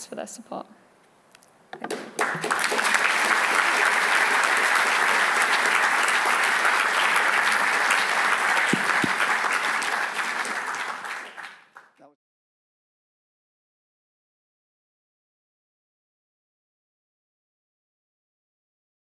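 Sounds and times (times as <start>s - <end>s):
audience applauding: 1.9s - 12.1s.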